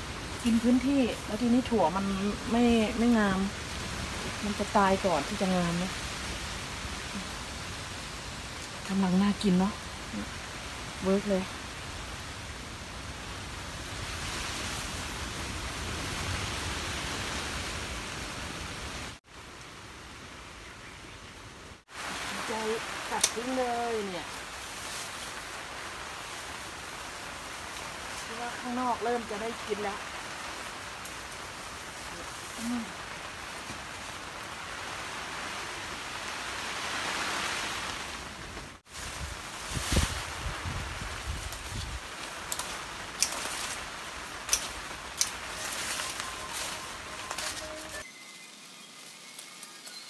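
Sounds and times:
rain falling on plants: 0.0s - 20.4s, 21.8s - 50.0s
strong wind on microphone: 39.0s - 42.0s.

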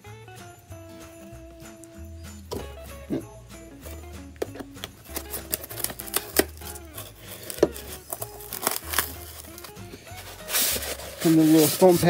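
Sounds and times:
background music with bass line: 0.0s - 12.0s
cardboard packaging clicks and rustles: 4.5s - 12.0s.

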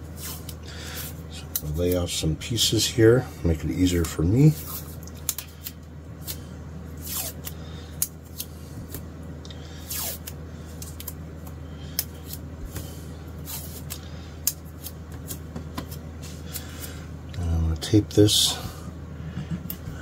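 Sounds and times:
steady low hum: 0.0s - 20.0s
masking tape tearing: 7.0s - 7.5s, 9.9s - 10.4s.

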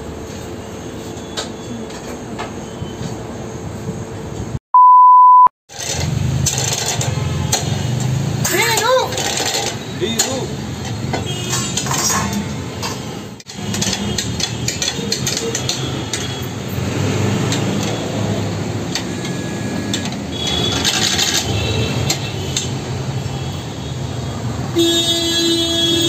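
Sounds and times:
metal rod clinking on tubs: 11.5s - 16.4s.

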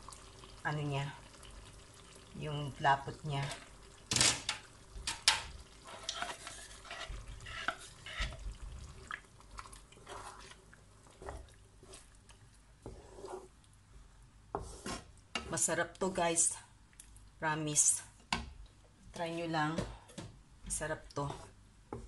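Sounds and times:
wooden spatula scraping and tapping: 4.5s - 13.6s, 14.5s - 15.7s, 19.6s - 22.0s.

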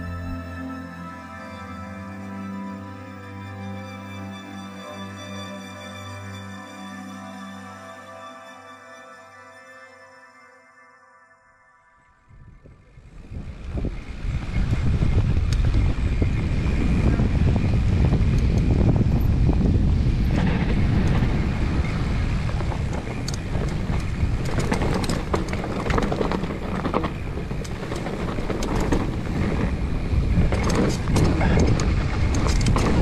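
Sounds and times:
wind rushing over microphone: 12.3s - 33.0s
bike rattling and knocking: 13.3s - 33.0s.

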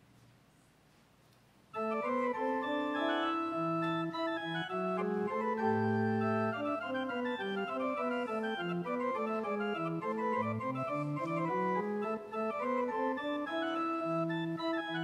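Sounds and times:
electronic keyboard organ chords: 1.8s - 15.0s.

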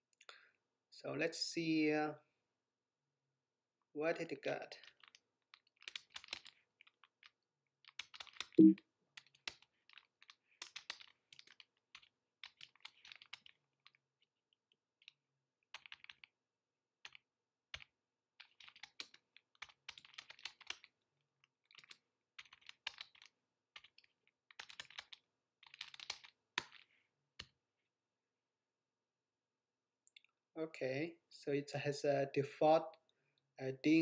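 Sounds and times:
faint keyboard typing: 4.8s - 16.4s, 17.0s - 27.6s.

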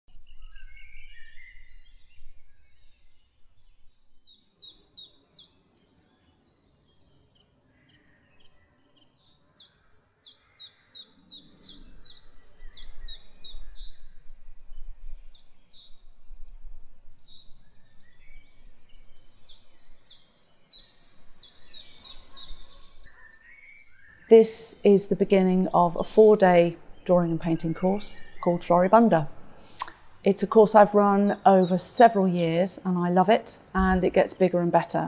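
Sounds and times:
songbirds singing: 0.1s - 35.0s.

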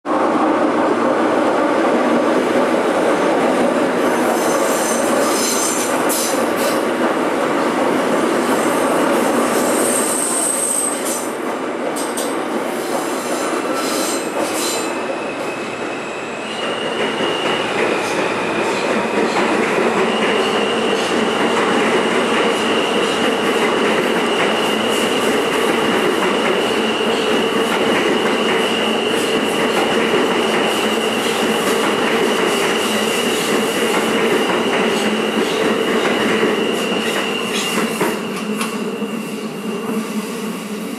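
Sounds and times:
subway train wheels rumbling: 0.0s - 40.9s.

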